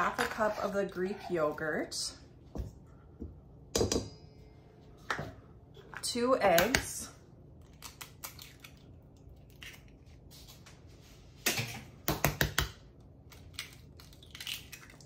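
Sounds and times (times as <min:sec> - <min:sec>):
eggshells cracking on a metal bowl: 0:13.3 - 0:15.0.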